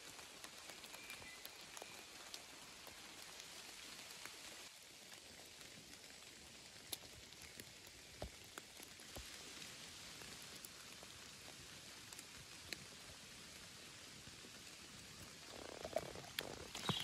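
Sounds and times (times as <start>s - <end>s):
low steady hiss: 0.0s - 17.0s
faint scattered ticks: 0.2s - 5.9s, 15.1s - 17.0s.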